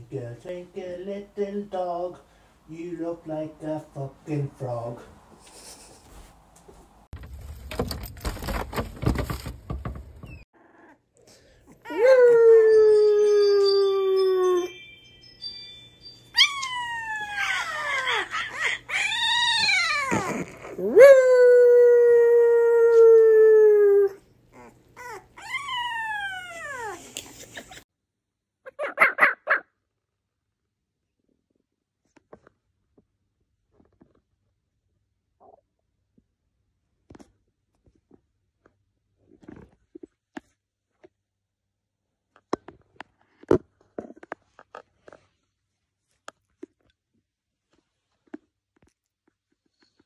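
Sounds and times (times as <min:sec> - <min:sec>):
puppy howling: 0:11.8 - 0:14.7, 0:16.4 - 0:27.0.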